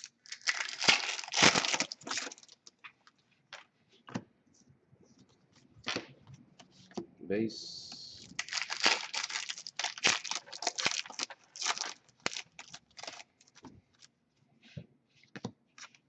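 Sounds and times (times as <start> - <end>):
foil wrapper crinkling and tearing: 0.0 - 2.8, 8.2 - 14.1.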